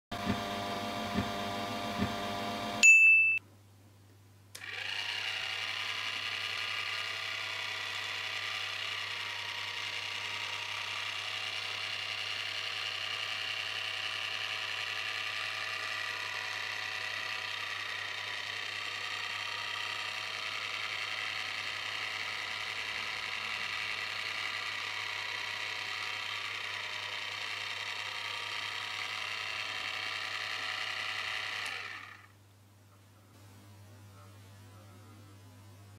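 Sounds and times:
small electric motor whine: 0:04.6 - 0:32.4.

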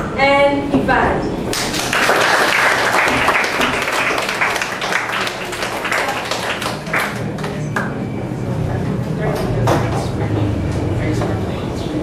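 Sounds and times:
students applauding: 0:01.5 - 0:08.0.

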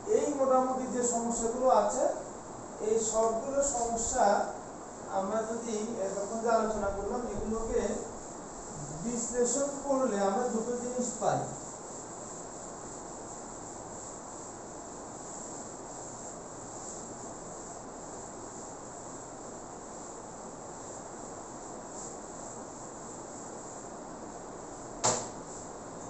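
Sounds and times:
high-pitched background hiss: 0:00.0 - 0:26.0
sharp click: 0:25.0 - 0:25.3.

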